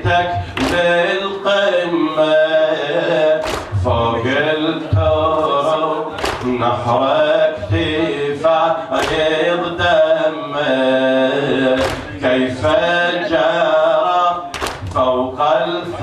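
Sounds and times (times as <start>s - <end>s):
man chanting into a microphone: 0.0s - 16.0s
sharp slaps: 0.6s - 1.0s, 3.4s - 3.9s, 6.1s - 6.6s, 9.0s - 9.4s, 11.8s - 12.2s, 14.5s - 15.1s.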